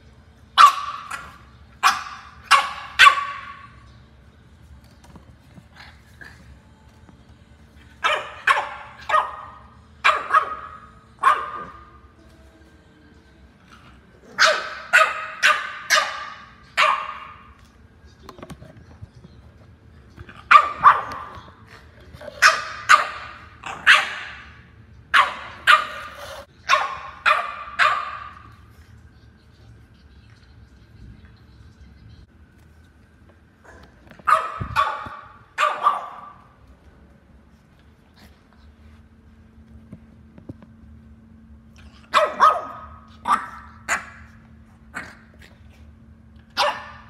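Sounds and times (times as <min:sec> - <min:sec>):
dog barking: 0:00.6 - 0:03.8, 0:08.0 - 0:11.9, 0:14.3 - 0:17.6, 0:20.4 - 0:21.5, 0:22.4 - 0:28.5, 0:33.7 - 0:36.5, 0:42.1 - 0:45.2, 0:46.5 - 0:47.0.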